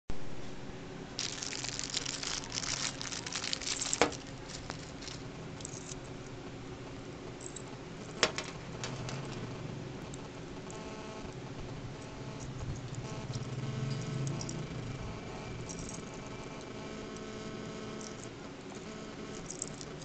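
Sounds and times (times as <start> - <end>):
faint steady hum: 0.1 - 20.0
metal chain handling: 1.2 - 6.0, 19.5 - 20.0
plastic bag crinkling: 1.2 - 6.0.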